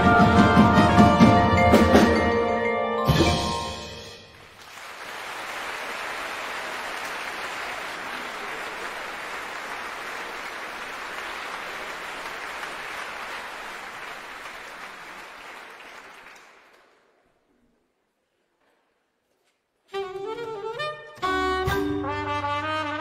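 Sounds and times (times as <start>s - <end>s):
applause: 4.3s - 17.3s.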